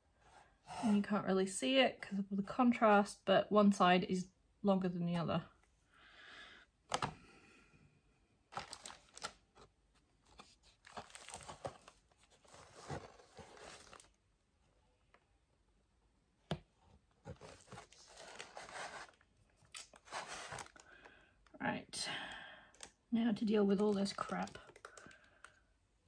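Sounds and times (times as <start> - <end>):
cardboard and plastic rustling: 8.5 - 14.2, 17.0 - 21.1, 23.7 - 25.6.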